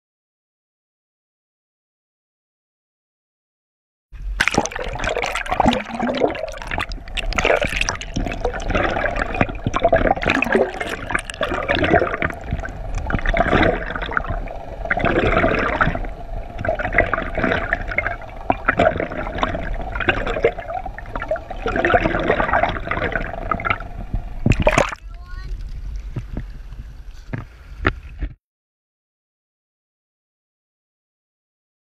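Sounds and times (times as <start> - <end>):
steady hum: 4.2 - 25.2
underwater water rushing and gurgling: 4.2 - 28.3.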